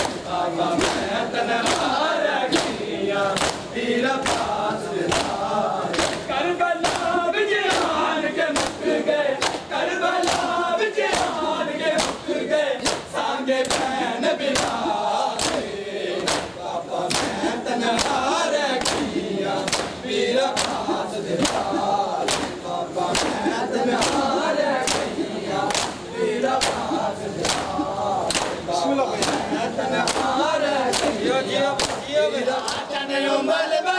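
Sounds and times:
men chanting in chorus: 0.0s - 33.9s.

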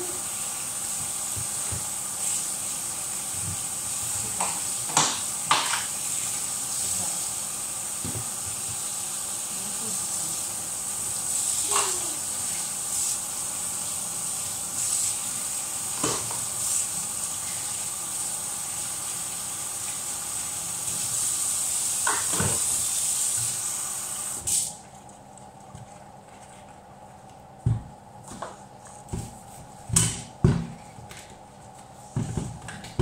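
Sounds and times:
tap running into sink: 22.0s - 23.6s.

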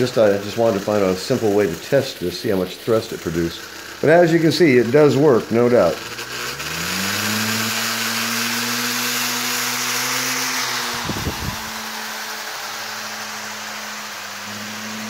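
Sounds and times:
model aeroplane motor whining: 0.0s - 15.0s
rushing air: 6.0s - 15.0s.

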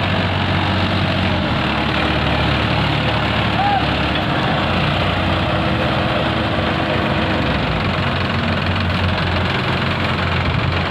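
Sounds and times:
diesel engines droning: 0.0s - 10.9s.

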